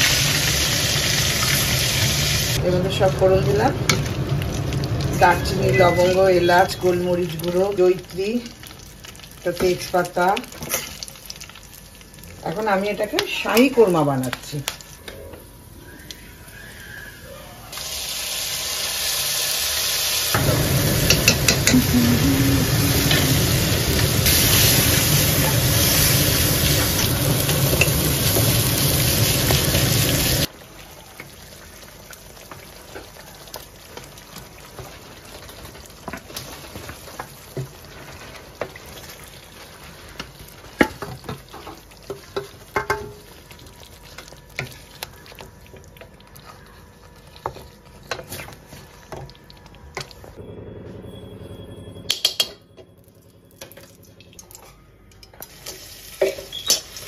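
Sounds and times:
food sizzling in hot oil: 0:00.0 - 0:15.0, 0:17.7 - 0:46.3, 0:55.4 - 0:57.0.

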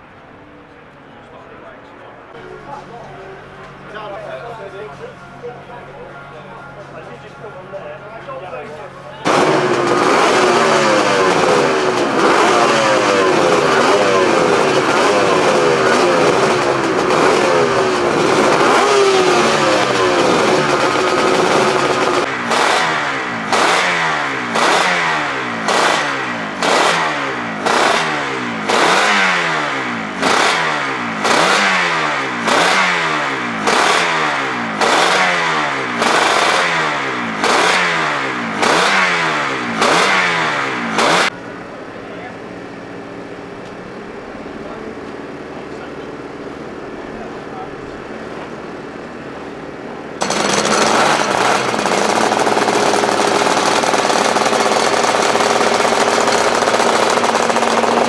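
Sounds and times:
two-stroke motorcycle engines revving: 0:07.1 - 0:58.0.

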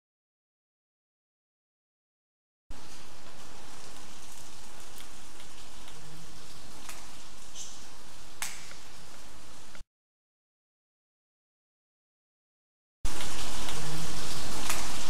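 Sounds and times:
microphone hiss: 0:02.7 - 0:09.8, 0:13.1 - 0:15.0.

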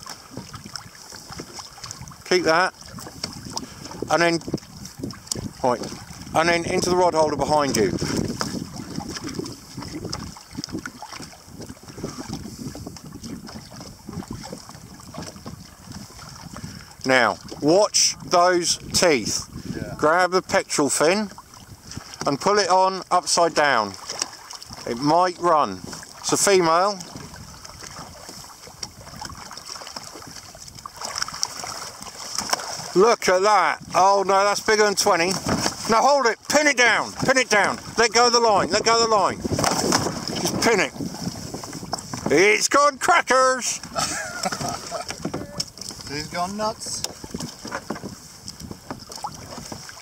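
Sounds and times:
water slapping against kayak hull: 0:00.0 - 0:50.0
wind buffeting microphone: 0:00.0 - 0:50.0
small splashes and drips: 0:00.1 - 0:02.2, 0:08.1 - 0:12.4, 0:23.9 - 0:24.9, 0:27.0 - 0:33.0.

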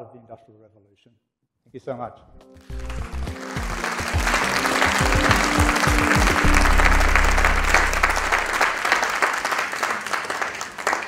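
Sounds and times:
audience applauding: 0:02.6 - 0:11.0
closing music sting: 0:02.7 - 0:09.3.

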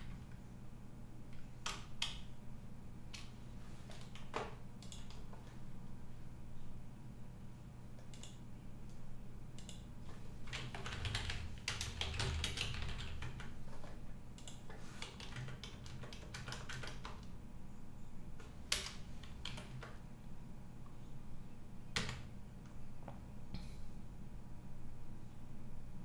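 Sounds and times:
typing on computer keyboard: 0:03.9 - 0:05.3, 0:10.5 - 0:17.3, 0:18.7 - 0:20.0, 0:22.0 - 0:22.3.

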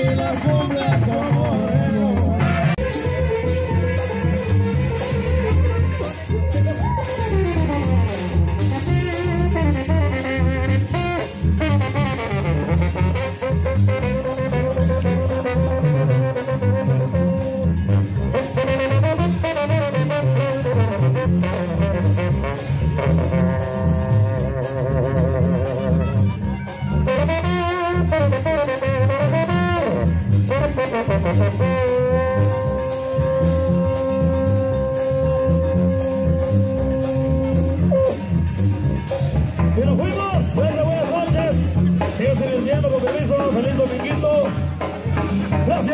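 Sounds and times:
brass section melody: 0:00.0 - 0:45.9
drums: 0:00.0 - 0:45.9
pulsing tuba bass: 0:00.0 - 0:45.9.

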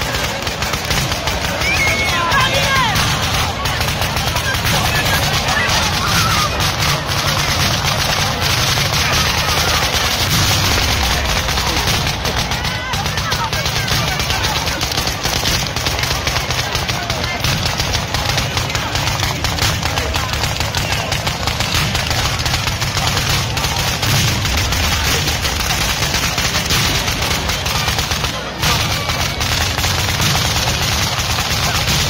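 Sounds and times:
firecrackers crackling: 0:00.0 - 0:32.0.

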